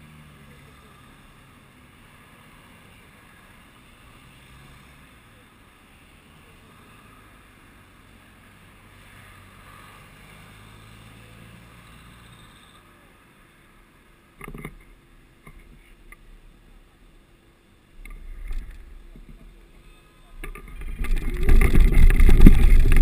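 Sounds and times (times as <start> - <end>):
cars driving past: 0.0 - 14.4
faint clicks: 18.0 - 19.6.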